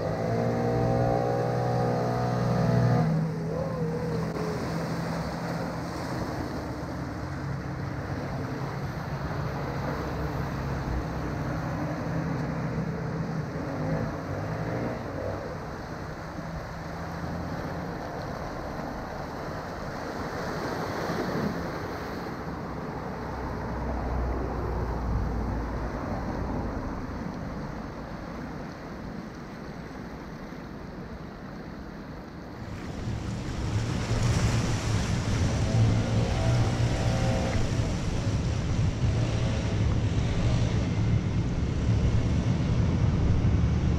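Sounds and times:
waves washing against rocks: 0:15.6 - 0:23.1, 0:26.0 - 0:41.5
road traffic passing: 0:32.6 - 0:43.9
wind buffeting microphone: 0:32.6 - 0:43.9.

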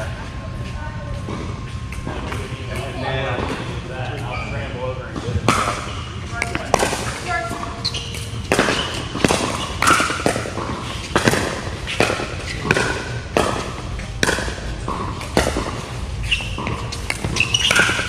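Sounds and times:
ball bouncing on hard court: 0:05.2 - 0:18.0
paddles popping against ball: 0:08.2 - 0:15.8.

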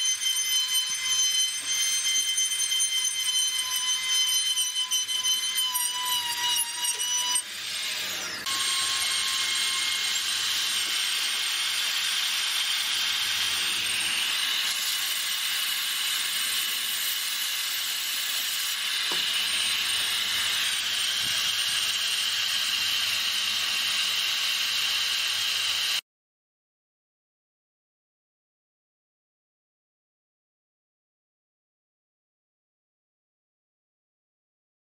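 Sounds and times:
rotary tool grinding wood: 0:00.0 - 0:26.0
rotary tool motor whine: 0:00.0 - 0:26.0.

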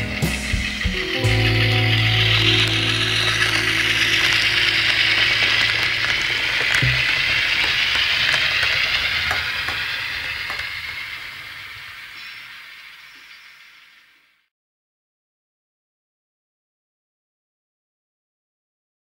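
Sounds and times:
low motor hum: 0:00.0 - 0:12.1
wheels clicking on rail joints: 0:00.0 - 0:14.3
model train wheels on rail: 0:00.0 - 0:14.5.

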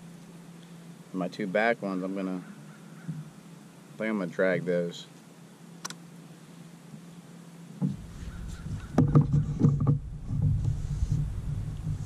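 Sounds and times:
sharp knocks: 0:07.8 - 0:10.6
low rubbing rumble: 0:07.8 - 0:12.0.

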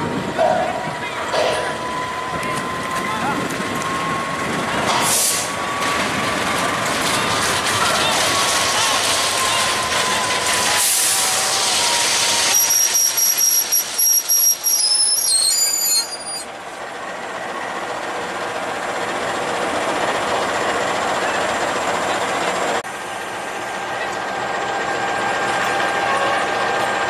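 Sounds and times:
high-pitched metallic squeal: 0:09.4 - 0:16.5.

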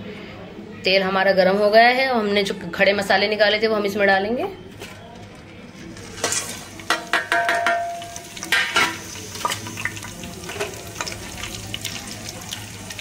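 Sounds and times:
spices sizzling in hot oil: 0:05.8 - 0:13.0
utensil knocking in pan: 0:06.8 - 0:09.0.

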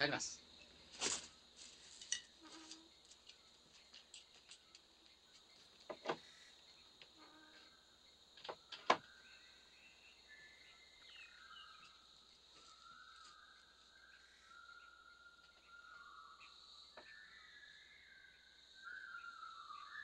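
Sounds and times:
insect drone: 0:00.0 - 0:20.0
birds whistling calls: 0:08.7 - 0:20.0.

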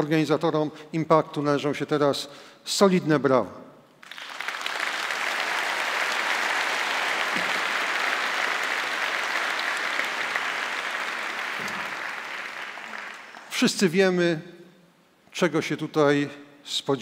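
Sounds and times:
audience applauding: 0:04.0 - 0:13.6.

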